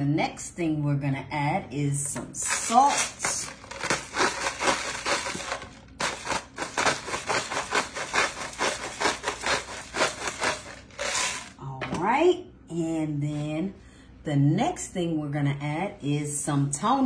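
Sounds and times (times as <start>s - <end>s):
salt grinder crunching: 2.6s - 11.6s.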